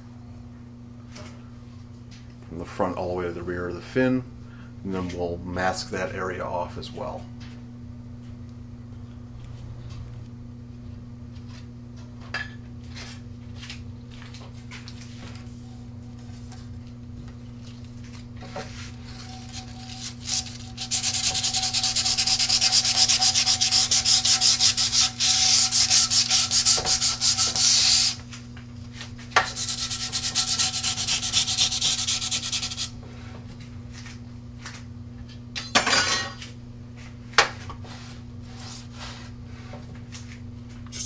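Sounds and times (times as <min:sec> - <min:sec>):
sandpaper scuffing fiberglass tube: 0:18.8 - 0:28.2, 0:29.4 - 0:33.0.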